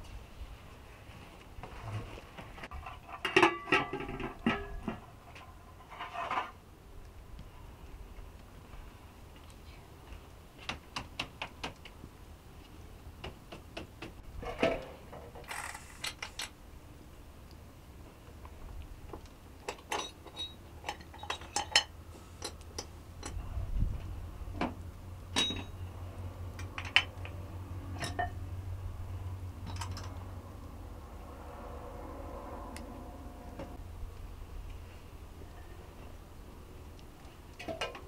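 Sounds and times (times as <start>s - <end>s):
metal scrape: 1.7s - 6.6s
pots and utensils clinking: 2.8s - 6.4s, 19.7s - 22.6s.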